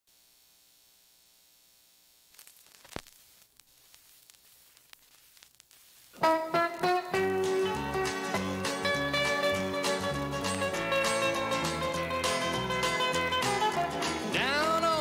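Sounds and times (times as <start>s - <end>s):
faint steady hum: 0.1s - 6.2s
record surface crackle: 0.1s - 13.7s.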